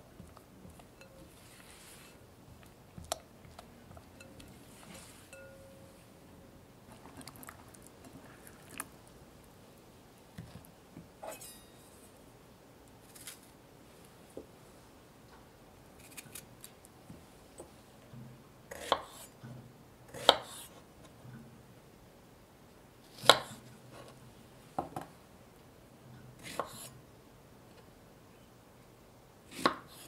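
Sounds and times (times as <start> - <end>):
clinks against glass bowl: 5.3 - 5.9.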